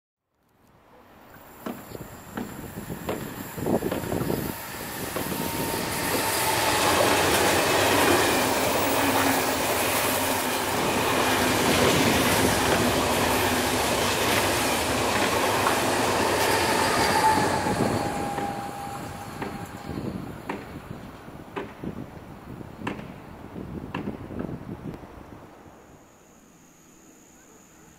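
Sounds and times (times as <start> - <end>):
train wheels rolling on rails: 1.3 - 23.3, 23.9 - 24.7
high wheel squeal: 1.6 - 7.5, 15.6 - 20.3.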